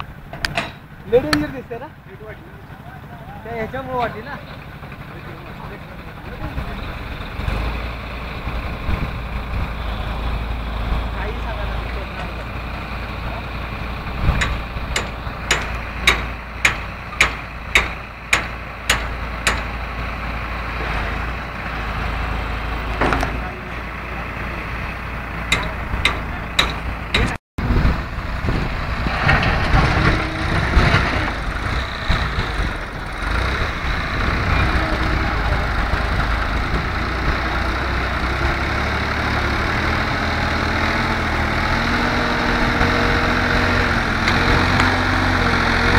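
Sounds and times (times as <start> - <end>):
tractor diesel engine running: 0.0 - 45.9
loader bucket scraping gravel: 27.7 - 45.9.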